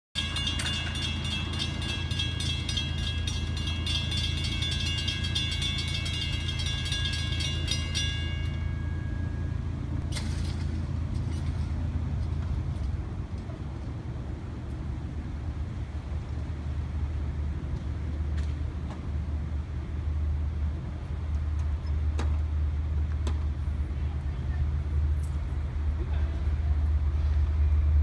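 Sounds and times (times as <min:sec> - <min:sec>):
crossing warning bell ringing: 0:00.2 - 0:11.8.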